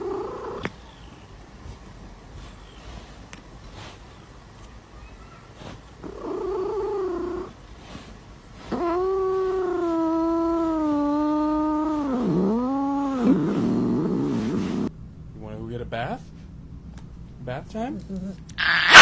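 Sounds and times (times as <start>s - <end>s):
angry cat yowling: 18.6s - 19.0s.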